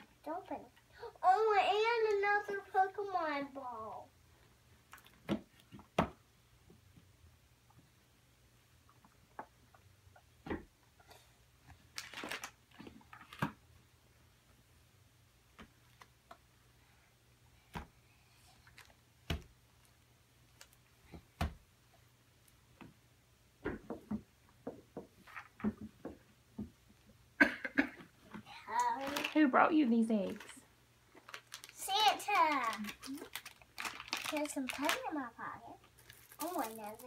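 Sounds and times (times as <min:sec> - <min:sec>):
plastic toys clicking and tapping: 0:28.8 - 0:29.4, 0:31.2 - 0:35.2, 0:35.9 - 0:37.0.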